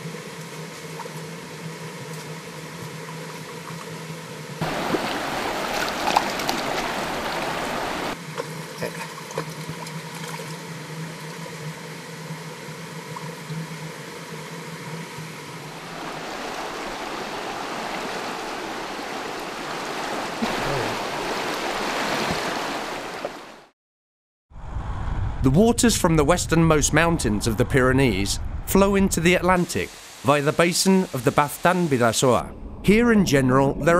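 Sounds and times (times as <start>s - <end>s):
stream water rushing: 4.6s - 8.2s, 15.3s - 23.7s, 29.5s - 32.4s.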